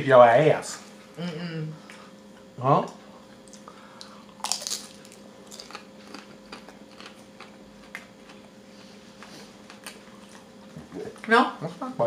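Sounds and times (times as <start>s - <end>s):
crunchy bite: 4.3s - 7.5s.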